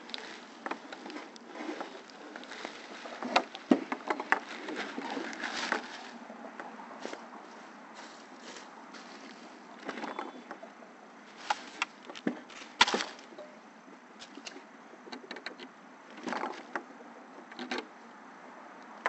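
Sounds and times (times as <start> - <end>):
wood knocking on wood: 3.2 - 5.1.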